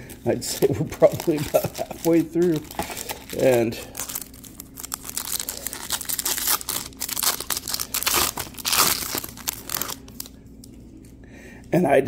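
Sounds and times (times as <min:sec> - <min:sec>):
card pack wrapper tearing: 0:00.1 - 0:10.3.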